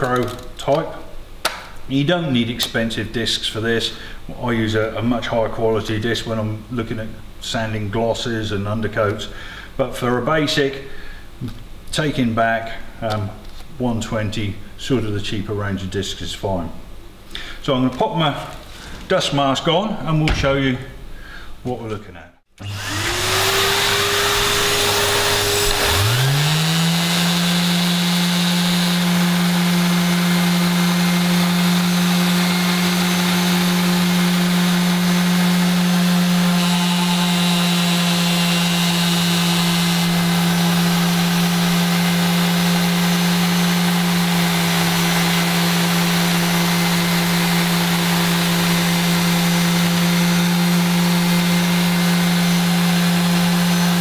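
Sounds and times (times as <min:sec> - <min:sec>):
orbital sander sanding metal: 0:22.6 - 0:54.0
vacuum motor whirring: 0:22.6 - 0:54.0.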